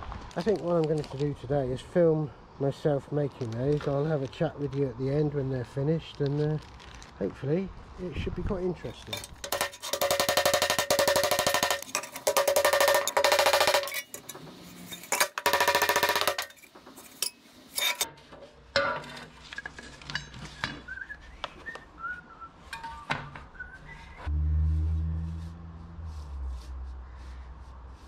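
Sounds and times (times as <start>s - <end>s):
metal pieces clinking: 9.1s - 18.1s
person whistling: 20.8s - 24.2s
low hum: 23.6s - 27.4s.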